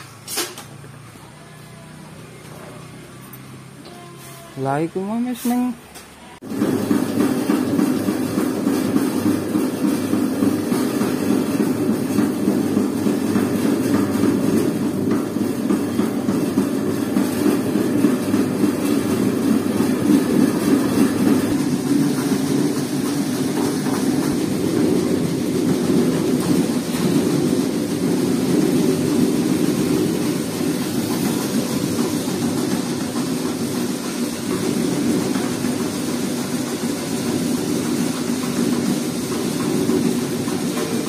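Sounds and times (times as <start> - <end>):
sorting machine sieve rattling: 6.4 - 41.0.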